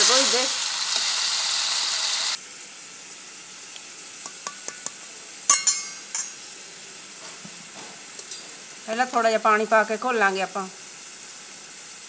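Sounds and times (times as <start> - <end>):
masala sizzling in oil: 0.0 - 12.0
spoon clinking steel bowl: 4.3 - 6.4.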